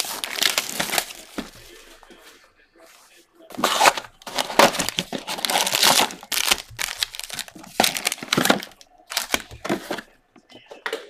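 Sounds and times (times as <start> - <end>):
plastic wrapping and cardboard tearing: 0.0 - 1.8, 3.5 - 10.1
card packs rustling: 0.0 - 2.4, 3.4 - 10.2.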